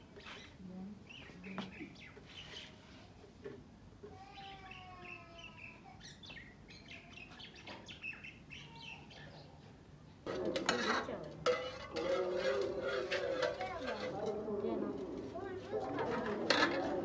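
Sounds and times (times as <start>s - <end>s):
small birds chirping: 0.0s - 3.1s, 4.2s - 10.2s
steel pots clattering: 10.3s - 17.0s.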